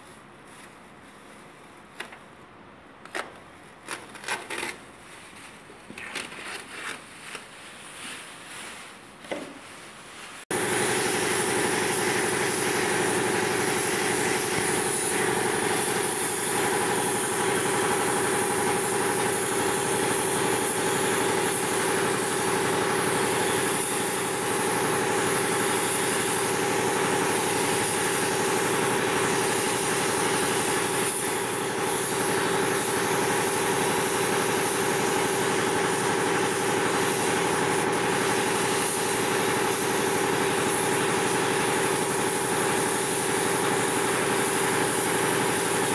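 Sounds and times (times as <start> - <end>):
steady machine hum: 10.5 - 39.6
paint spray gun hissing: 10.5 - 45.9.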